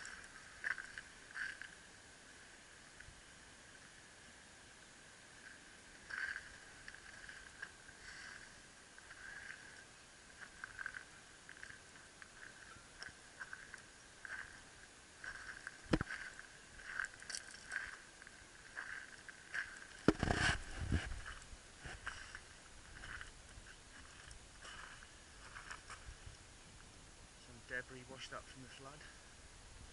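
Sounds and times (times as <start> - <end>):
footsteps crunching on shingle: 0.0 - 1.8, 6.0 - 26.3.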